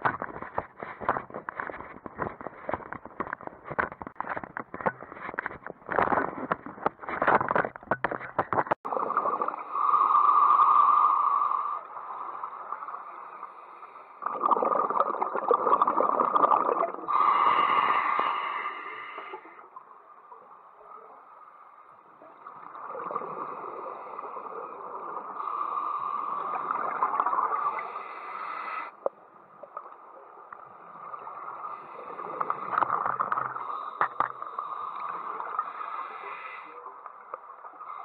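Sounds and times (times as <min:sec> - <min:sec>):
gurgling exhaled bubbles underwater: 0:08.8 - 0:13.6, 0:14.2 - 0:21.3, 0:22.2 - 0:28.3.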